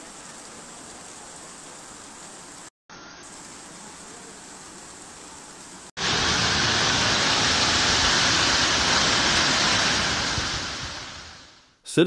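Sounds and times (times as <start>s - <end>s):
hail and rain pouring down: 6.0s - 11.4s.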